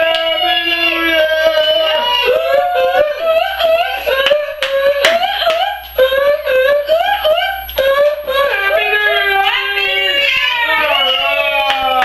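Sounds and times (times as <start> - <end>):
hand claps: 0.0 - 0.4, 4.1 - 5.9, 10.9 - 12.0
high-pitched singing: 0.0 - 12.0.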